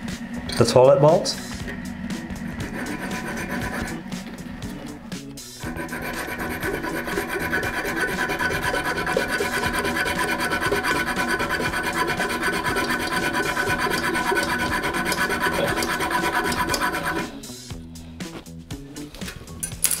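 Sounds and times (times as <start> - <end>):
saw blade cutting metal: 0.0 - 17.6.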